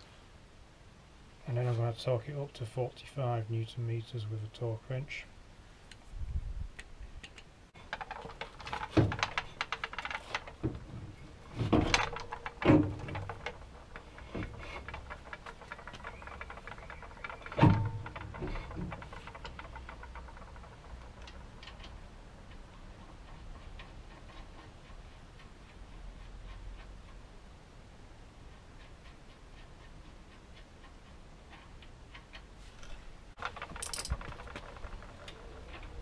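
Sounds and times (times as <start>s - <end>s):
ratchet wrench clicking: 32.2s - 36.0s.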